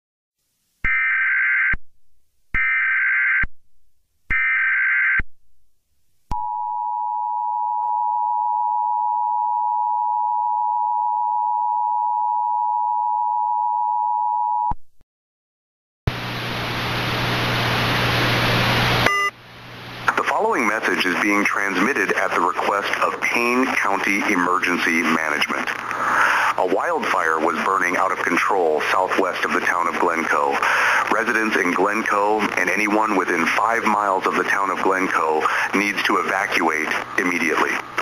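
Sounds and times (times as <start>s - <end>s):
hiss with low hum: 16.1s - 38.0s.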